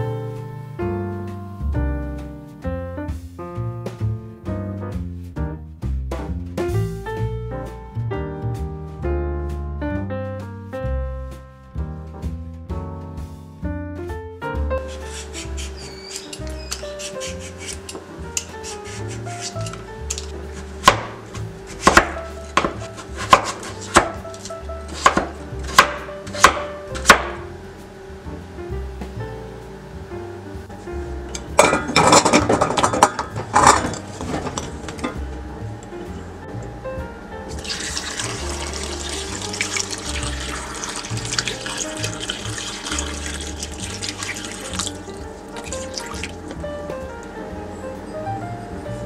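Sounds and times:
background music: 0:00.0 - 0:49.0
knife chopping on wooden board: 0:20.6 - 0:24.3, 0:24.9 - 0:27.4
water running into a pot: 0:37.5 - 0:46.6.

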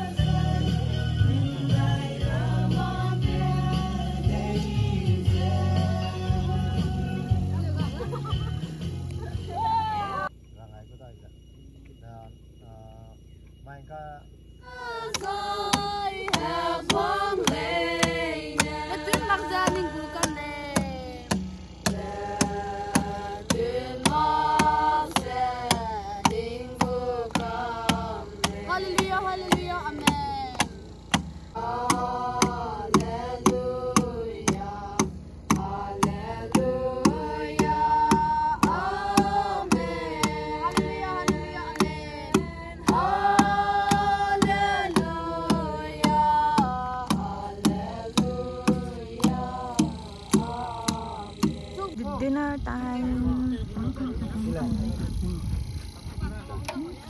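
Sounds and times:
steady clicking beat: 0:15.0 - 0:52.6
person singing long sliding notes: 0:31.6 - 0:52.0.

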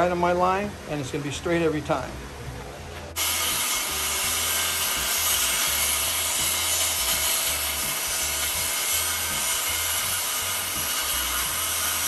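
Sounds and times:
circular saw cutting plywood: 0:03.2 - 0:12.0.

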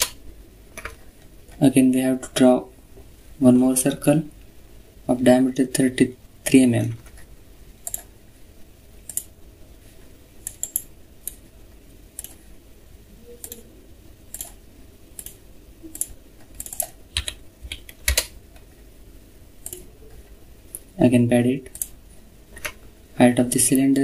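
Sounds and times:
keyboard keystrokes: 0:15.2 - 0:18.4
mouse clicks: 0:19.6 - 0:19.9.

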